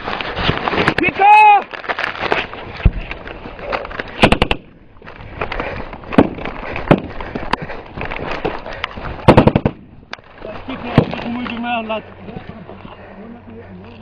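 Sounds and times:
small-arms gunfire: 0:04.2 - 0:04.7, 0:09.3 - 0:09.8.

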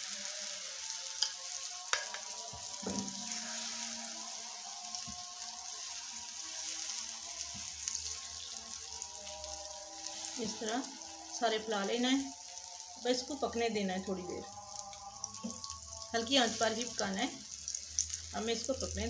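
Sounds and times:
batter sizzling in pan: 0:00.0 - 0:19.0.

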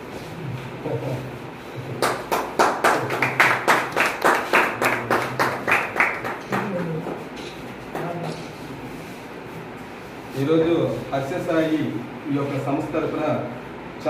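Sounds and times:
people clapping in rhythm: 0:01.9 - 0:08.5.

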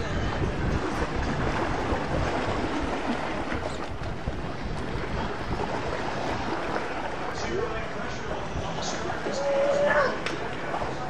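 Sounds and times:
gusty wind on microphone: 0:00.0 - 0:07.2
waves washing against pier: 0:00.0 - 0:11.0.

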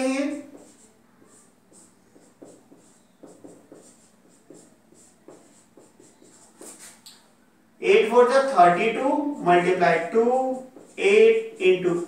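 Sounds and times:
marker writing on whiteboard: 0:00.0 - 0:07.2, 0:07.8 - 0:12.0.

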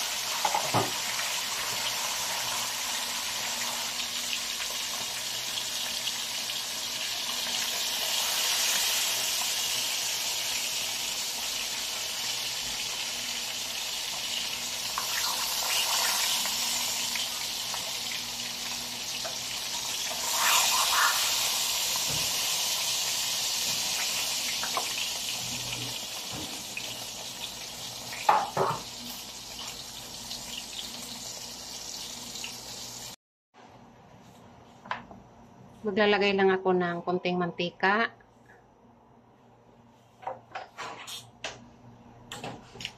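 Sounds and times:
fish sizzling in hot oil: 0:00.0 - 0:33.2.

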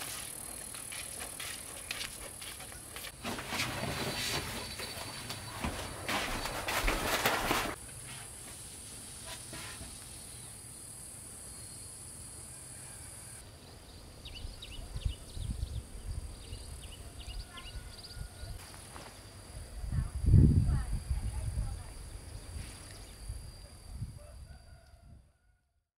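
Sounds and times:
plastic sheeting crinkling: 0:03.0 - 0:08.3
high insect drone: 0:07.8 - 0:24.8.

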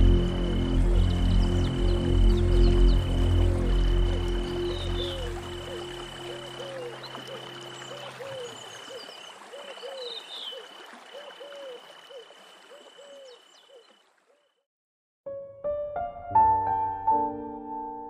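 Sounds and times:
soft piano music: 0:00.0 - 0:08.7, 0:15.3 - 0:18.0
rush of falling water: 0:00.0 - 0:13.2
high insect trill: 0:00.0 - 0:13.6.

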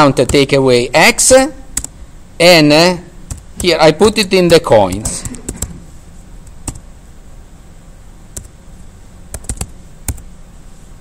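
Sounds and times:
computer keyboard typing: 0:03.3 - 0:03.8, 0:04.5 - 0:05.8, 0:06.6 - 0:06.8, 0:08.3 - 0:08.5, 0:09.3 - 0:10.2.

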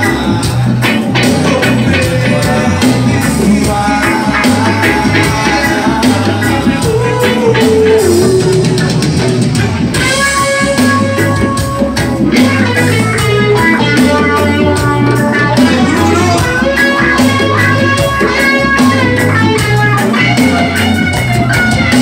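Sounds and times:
drum kit: 0:00.0 - 0:22.0
electric guitar: 0:00.0 - 0:22.0
keyboard: 0:00.0 - 0:22.0.

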